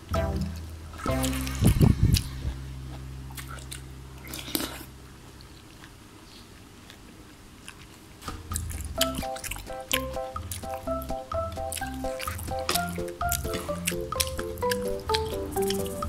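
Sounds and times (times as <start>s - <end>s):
background music: 0.0s - 2.6s, 8.4s - 16.0s
chewing and biting noodle soup: 1.2s - 16.0s.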